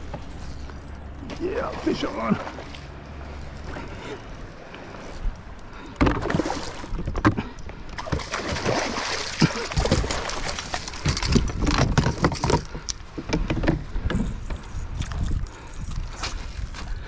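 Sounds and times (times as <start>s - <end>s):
water splashing around kayak: 0.0s - 17.0s
fishing gear knocking on hull: 9.4s - 14.6s.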